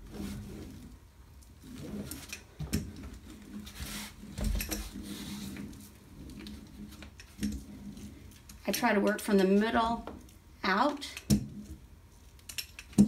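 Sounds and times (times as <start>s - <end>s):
brayer rolling over paper: 0.0s - 10.5s, 11.3s - 13.0s.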